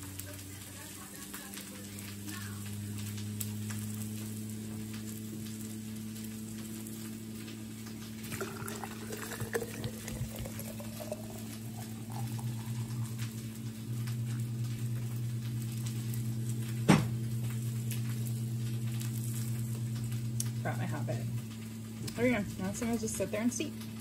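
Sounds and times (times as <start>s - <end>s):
steady low hum: 0.0s - 24.0s
water pouring into a jar: 8.0s - 13.6s.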